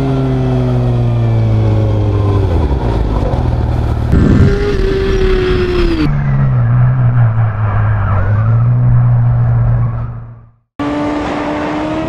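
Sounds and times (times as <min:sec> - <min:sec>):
motorcycle engine revving: 0:00.0 - 0:07.2.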